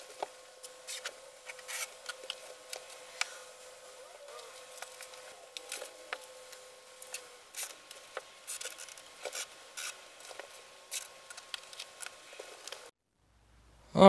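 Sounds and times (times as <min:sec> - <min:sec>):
masking tape rasping off roll: 0:00.0 - 0:03.4, 0:04.4 - 0:12.9
tape rubbed onto carpet: 0:00.6 - 0:02.2.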